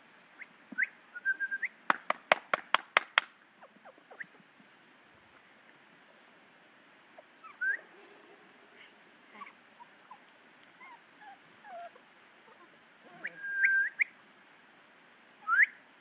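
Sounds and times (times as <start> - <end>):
puppies whimpering: 8.8 - 13.4.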